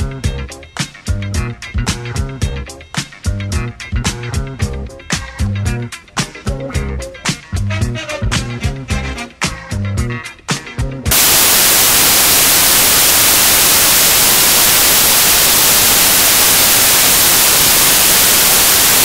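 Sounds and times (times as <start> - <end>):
upbeat background music: 0.0 - 11.1
loud static hiss: 11.1 - 19.0.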